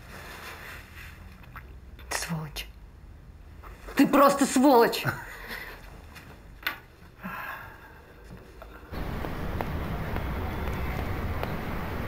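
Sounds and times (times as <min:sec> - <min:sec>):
traffic rumble and hum: 0:08.9 - 0:12.0.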